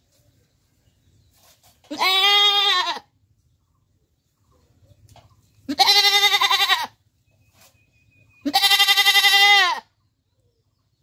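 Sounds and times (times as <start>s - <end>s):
goat bleating: 1.9s - 3.1s, 5.7s - 7.0s, 8.4s - 9.9s.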